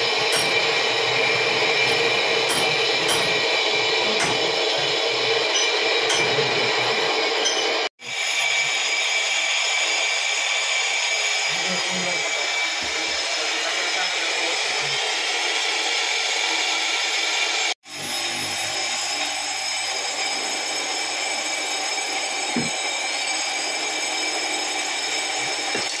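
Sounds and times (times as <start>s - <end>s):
brake lathe cutting rotor: 0.0s - 26.0s.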